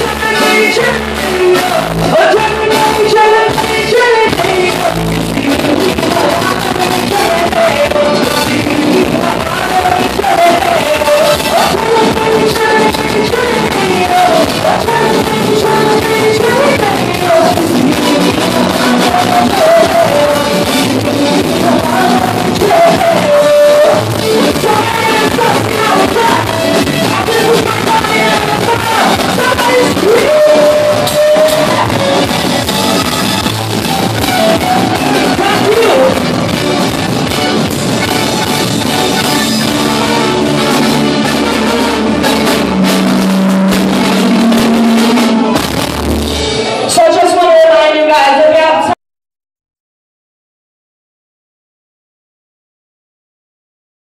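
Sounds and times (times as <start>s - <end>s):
woman singing into microphone: 0.0s - 32.8s, 34.2s - 36.4s
live band music: 0.0s - 49.0s.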